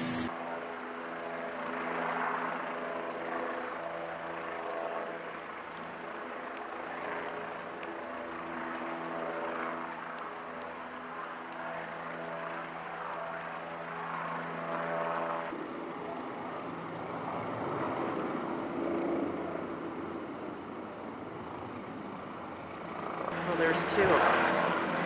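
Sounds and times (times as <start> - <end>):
rushing noise: 0.0 - 0.3
helicopter drone: 0.0 - 25.0.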